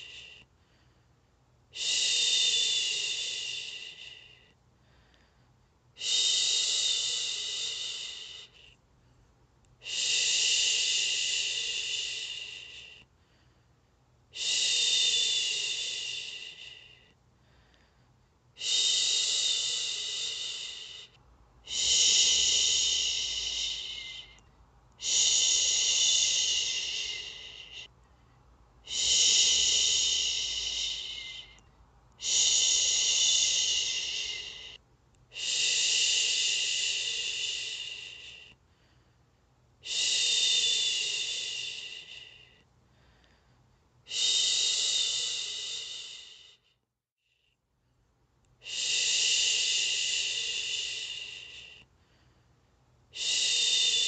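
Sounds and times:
woman shushing: 21.7 - 24.4, 25.0 - 27.9, 28.9 - 31.6, 32.2 - 38.5.

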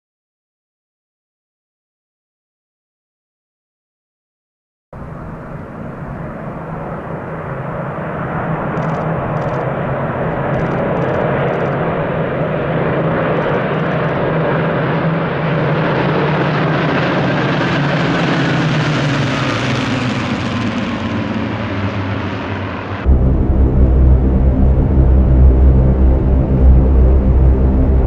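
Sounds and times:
propeller planes droning overhead: 5.0 - 28.0
faint falling whine: 22.9 - 28.0.

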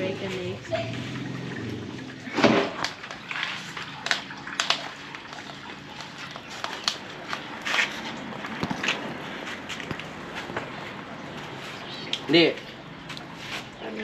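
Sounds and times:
footsteps in flip-flops: 6.0 - 13.7.

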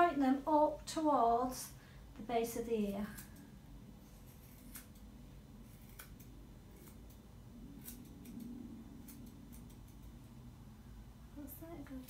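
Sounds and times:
scissors snipping fur: 3.0 - 10.3.

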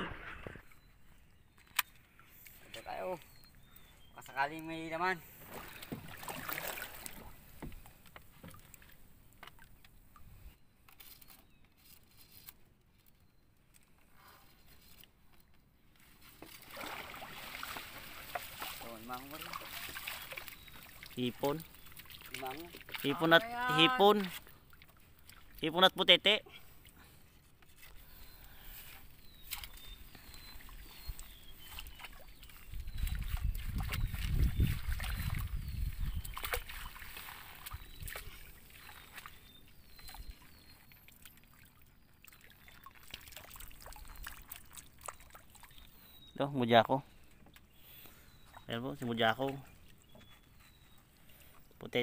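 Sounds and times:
water splashing: 5.2 - 10.3, 16.2 - 26.0, 29.4 - 46.0.

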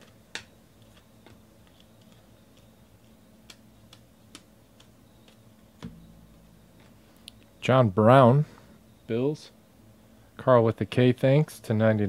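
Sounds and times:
cards being flipped by hand: 0.0 - 6.0.

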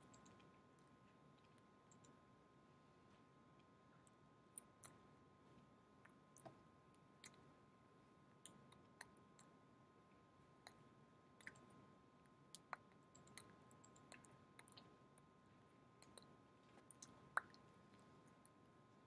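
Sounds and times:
small clicks: 0.0 - 2.2
faint hum: 0.0 - 19.0.

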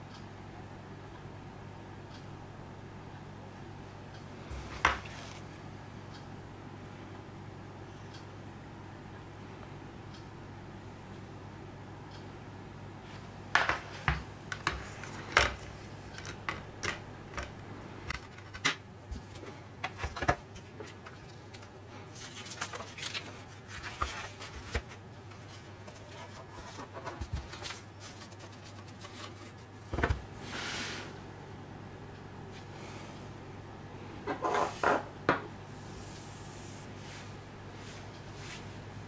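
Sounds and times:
paper rustling: 18.2 - 29.8.

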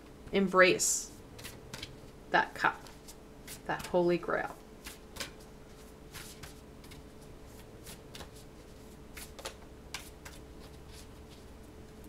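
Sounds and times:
cards being shuffled: 1.4 - 2.2, 4.8 - 11.5.

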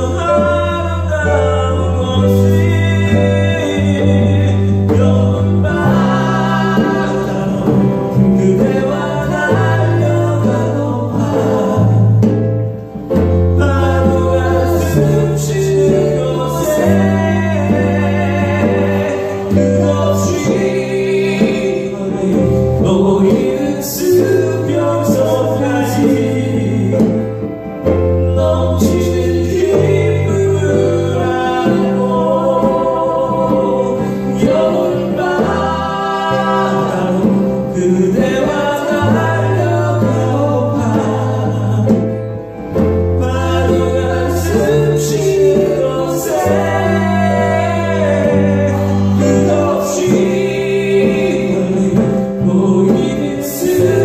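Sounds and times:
acoustic guitar: 0.0 - 54.0
djembe drumming: 0.0 - 54.0
electric bass: 0.0 - 54.0.

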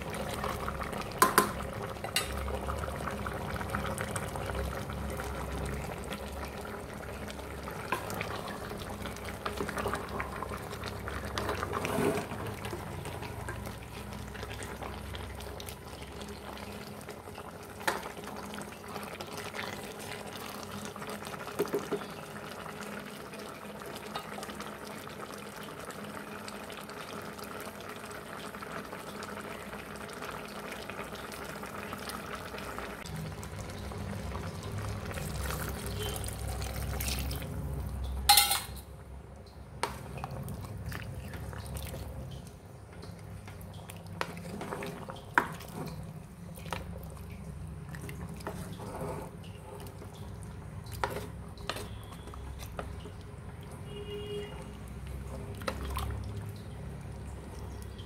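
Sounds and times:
curry bubbling in a metal pot: 0.0 - 58.0
spoon scraping against a pot: 38.3 - 38.8, 51.0 - 52.9.

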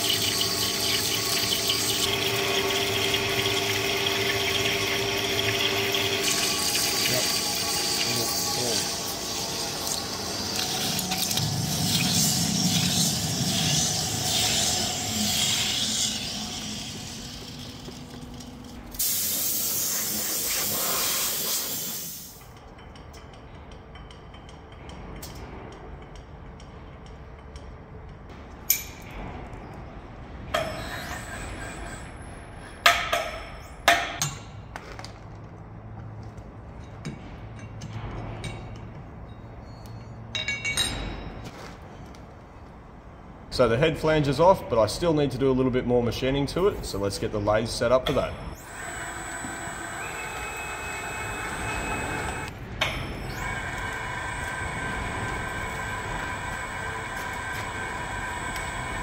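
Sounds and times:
lathe cutting metal: 0.0 - 17.8, 48.6 - 52.5, 53.2 - 59.0
loud hiss: 19.0 - 22.4.

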